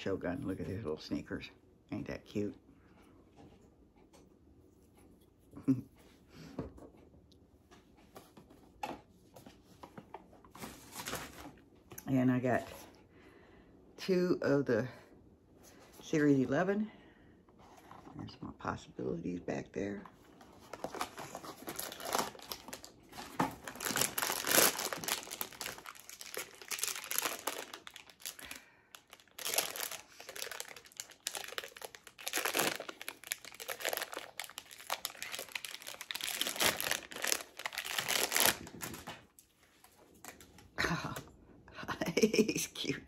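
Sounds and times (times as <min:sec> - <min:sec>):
wrapper crinkling and tearing: 0:20.6 - 0:39.3.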